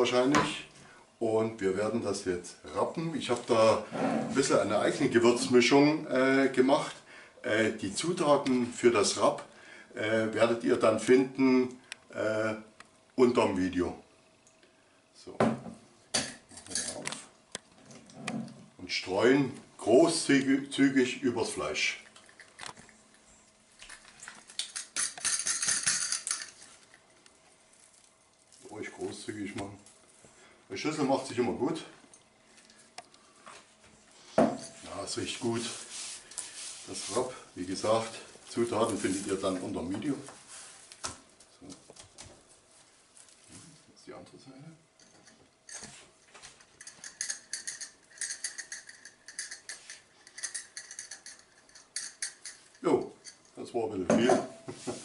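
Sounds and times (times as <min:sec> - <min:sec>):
spice rattling in glass jar: 0:24.0 - 0:27.0, 0:46.6 - 0:53.6.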